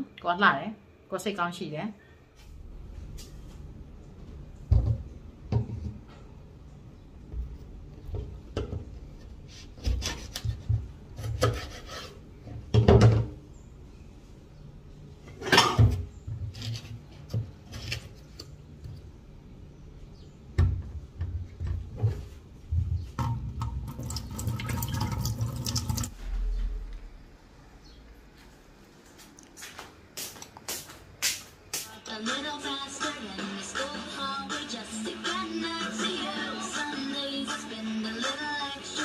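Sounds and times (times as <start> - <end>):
kitchen tap running: 23.2 - 26.1.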